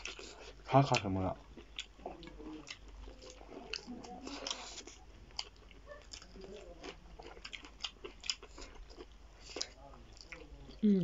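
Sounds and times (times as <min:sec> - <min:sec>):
chewing and crunching food: 0:00.0 - 0:10.8.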